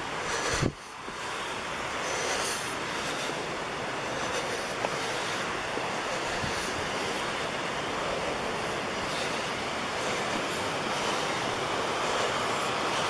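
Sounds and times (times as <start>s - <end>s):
steady rushing outdoor noise: 0.0s - 13.0s.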